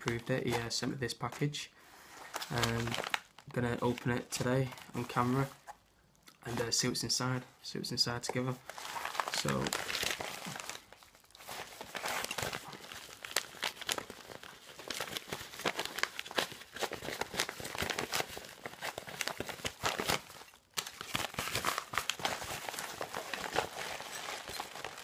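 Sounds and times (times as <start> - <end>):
padded envelope tearing and crinkling: 2.2 - 5.5, 8.6 - 25.0.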